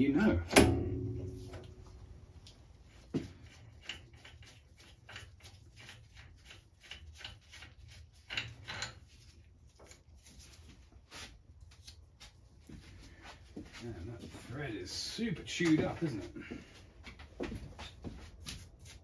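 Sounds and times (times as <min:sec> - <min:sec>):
sharp metal knocks: 0:00.4 - 0:01.8.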